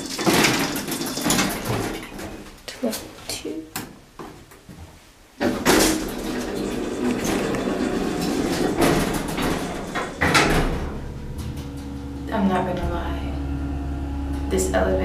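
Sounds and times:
elevator rushing noise: 0:06.0 - 0:15.0.

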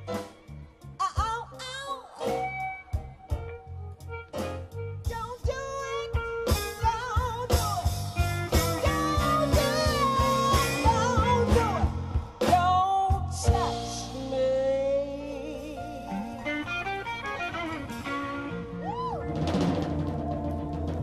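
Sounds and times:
blues band playing: 0:00.0 - 0:21.0
woman singing: 0:00.9 - 0:03.5, 0:05.0 - 0:16.8.

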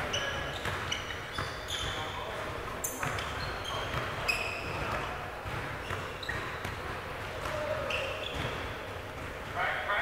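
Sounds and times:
short high squeaks: 0:00.1 - 0:02.2, 0:02.8 - 0:04.9
ball bouncing and thudding: 0:02.7 - 0:07.7, 0:08.3 - 0:09.6.

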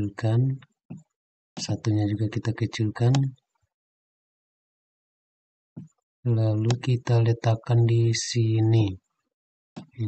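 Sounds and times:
man speaking: 0:00.0 - 0:00.6, 0:01.6 - 0:03.4, 0:06.3 - 0:09.0.

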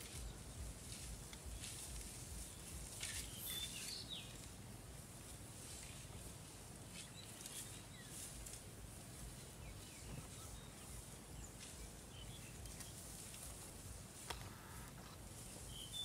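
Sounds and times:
animal tearing dry grass: 0:00.0 - 0:16.0
faint bird chirps: 0:02.5 - 0:04.5, 0:09.4 - 0:13.1, 0:15.5 - 0:16.0.

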